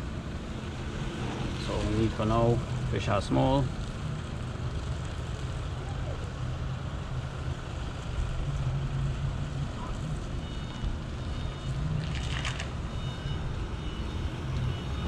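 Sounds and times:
low outdoor rumble: 0.0s - 15.0s
rustling and clicks: 12.0s - 12.8s.

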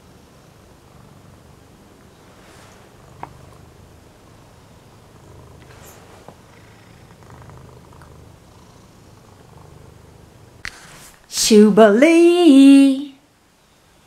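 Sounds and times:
cat purring: 0.0s - 11.1s.

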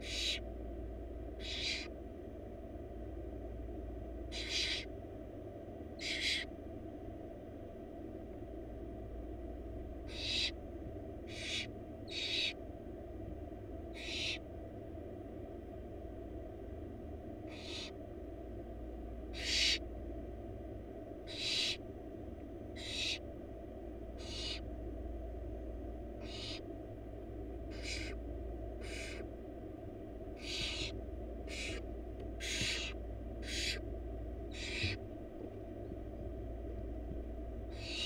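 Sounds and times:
owl chicks screeching: 0.0s - 0.5s, 1.4s - 2.0s, 4.3s - 4.9s, 5.9s - 6.5s, 10.0s - 10.6s, 11.2s - 12.6s, 13.9s - 14.4s, 17.4s - 18.0s, 19.3s - 19.8s, 21.2s - 21.8s, 22.7s - 23.2s, 24.1s - 24.7s, 26.2s - 26.8s, 27.7s - 28.2s, 28.8s - 29.3s, 30.4s - 33.9s, 34.5s - 35.0s, 37.7s - 38.0s
low hum: 0.0s - 38.0s.

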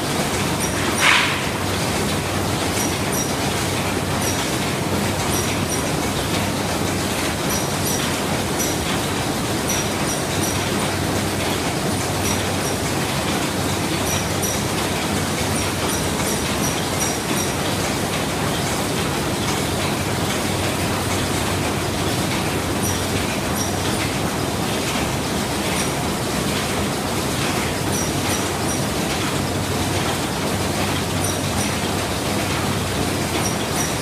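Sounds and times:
machine mechanical din: 0.0s - 34.0s
high metallic ticks: 0.6s - 1.6s, 2.8s - 3.4s, 7.5s - 10.8s, 14.0s - 14.7s, 15.5s - 17.6s, 27.9s - 28.9s, 33.4s - 34.0s.

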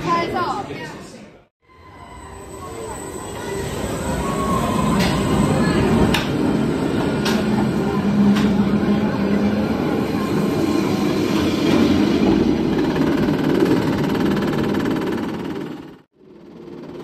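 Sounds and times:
roller coaster wheels rumbling on track: 2.6s - 16.0s.

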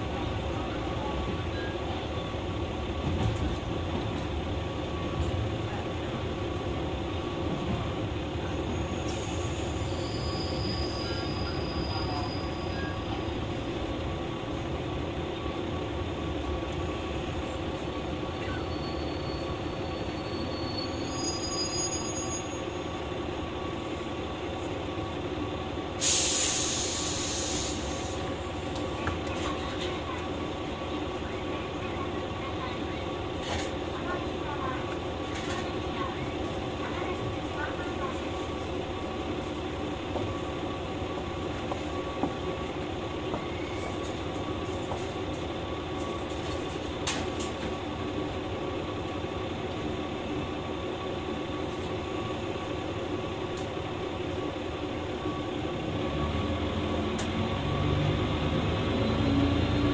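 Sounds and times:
diesel engine drone: 22.6s - 59.9s
loud hiss: 26.0s - 28.2s.

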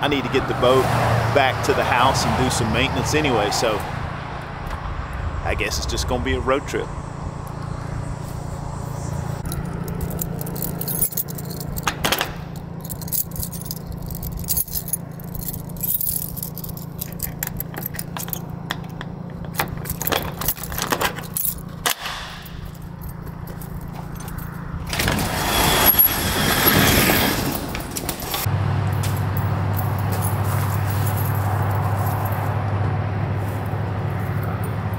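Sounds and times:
keys jangling: 9.4s - 24.7s, 27.7s - 32.5s.

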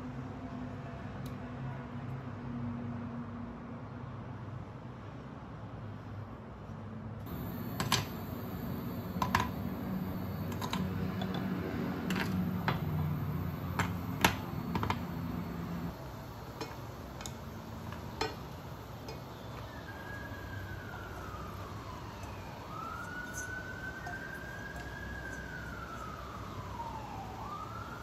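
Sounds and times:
low hum: 7.3s - 27.8s
prawns clicking and popping in pan: 16.5s - 19.8s.

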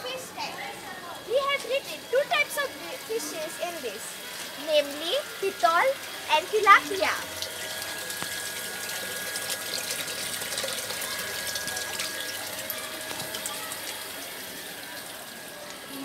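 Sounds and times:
water splashing into a tank: 4.2s - 16.0s.

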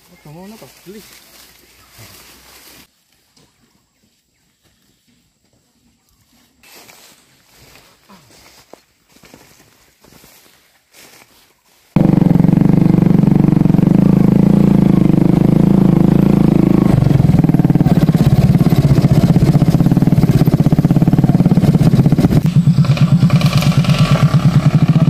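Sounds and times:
motorcycle engine running: 12.0s - 25.0s.

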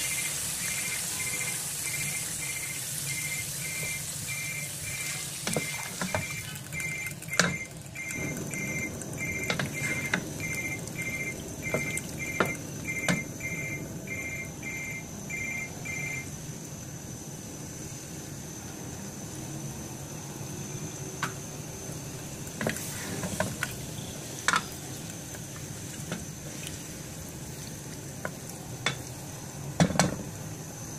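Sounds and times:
curry sizzling and bubbling: 0.0s - 15.3s, 21.6s - 30.9s.

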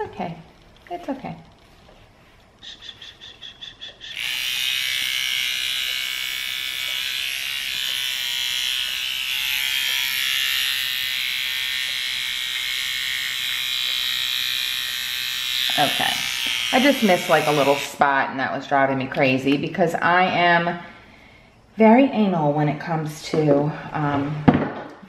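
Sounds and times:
electric trimmer buzzing: 4.1s - 18.1s.

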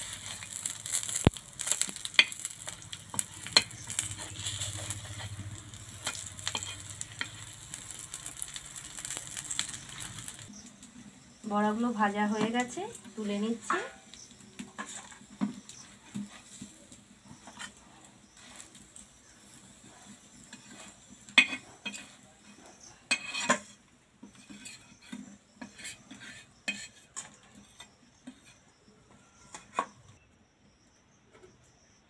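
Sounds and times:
metal spatula scraping griddle: 0.0s - 10.4s, 14.6s - 30.0s.

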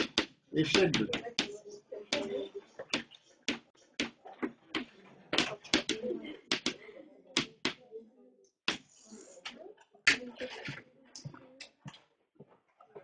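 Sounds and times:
chalk tapping on blackboard: 0.0s - 4.2s, 4.8s - 6.8s, 7.4s - 7.8s, 8.7s - 9.0s.

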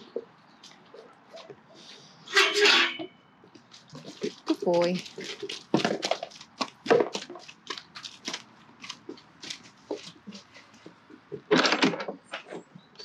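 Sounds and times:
hooves on concrete: 3.4s - 11.5s.

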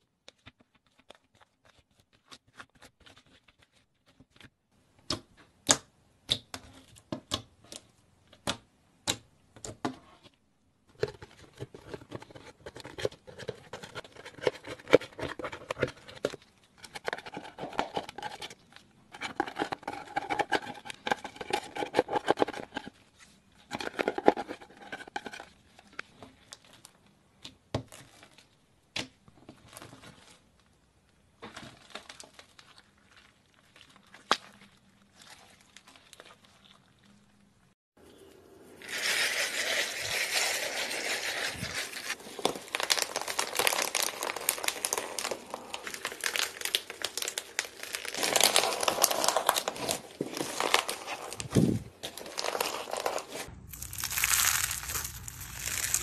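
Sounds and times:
crackling and scratching: 10.9s - 26.9s, 38.8s - 56.0s.

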